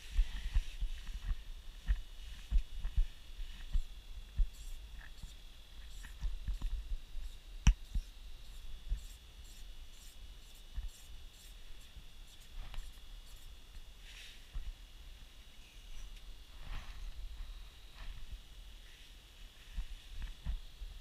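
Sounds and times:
faint high-pitched hum: 0:00.0 - 0:21.0.

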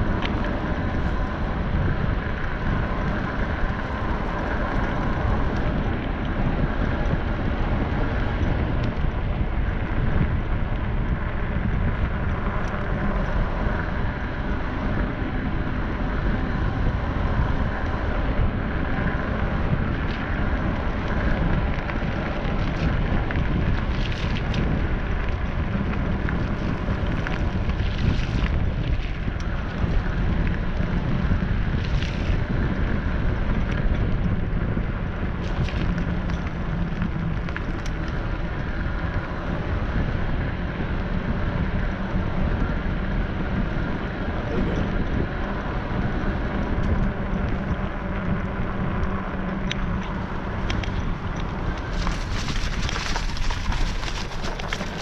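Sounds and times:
vehicle rumble: 0:00.0 - 0:55.0
wind buffeting microphone: 0:00.0 - 0:55.0.

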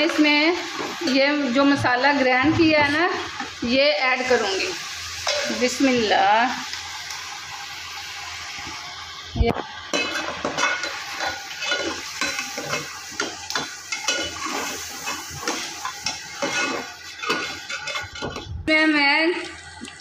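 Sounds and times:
chicken sizzling in hot oil: 0:00.0 - 0:20.0
metal ladle scraping a pot: 0:10.0 - 0:12.8, 0:13.9 - 0:18.4.

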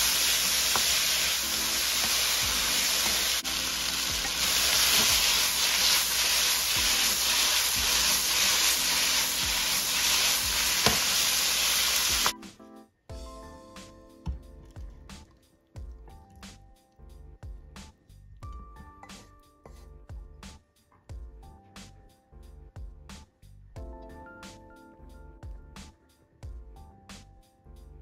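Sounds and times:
food sizzling in oil in a pan: 0:00.0 - 0:12.3
wooden spatula stirring food: 0:00.0 - 0:12.3.

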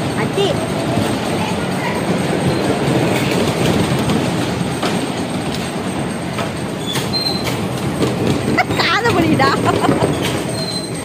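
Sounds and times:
bumper cars rumbling: 0:00.0 - 0:11.0
high squeak: 0:04.7 - 0:07.7, 0:10.1 - 0:11.0.

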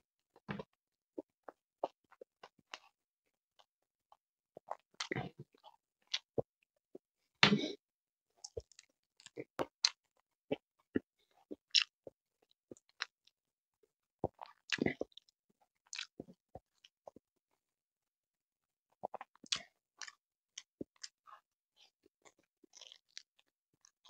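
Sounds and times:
chewing and biting: 0:04.6 - 0:06.4, 0:11.6 - 0:11.9, 0:15.9 - 0:17.2, 0:19.0 - 0:24.0.

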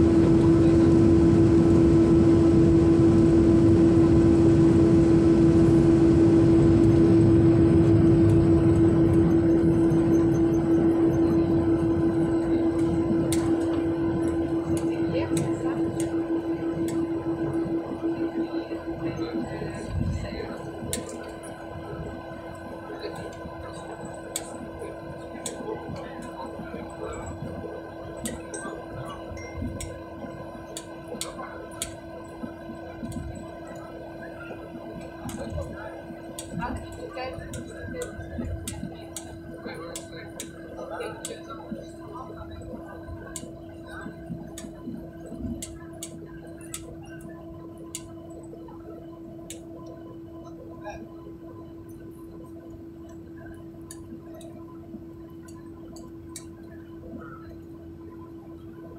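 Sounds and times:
aircraft cabin drone: 0:00.0 - 0:58.9
faint steady tones: 0:00.0 - 0:58.9.

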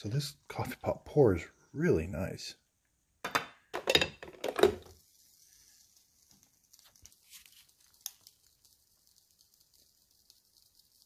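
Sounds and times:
faint hiss: 0:04.8 - 0:11.0.

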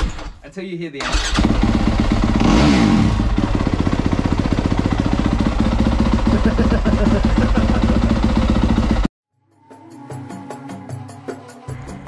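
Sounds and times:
dirt bike engine idling: 0:01.4 - 0:02.5, 0:03.2 - 0:09.1.

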